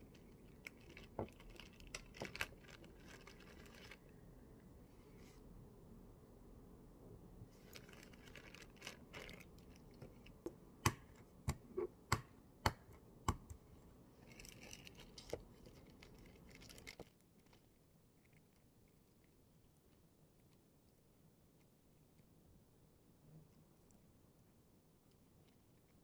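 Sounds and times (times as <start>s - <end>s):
plastic bag rustling: 0.0s - 4.0s, 7.6s - 10.5s
eggshell crackling: 0.0s - 4.1s, 7.6s - 21.0s
egg tapping on desk: 10.4s - 13.6s.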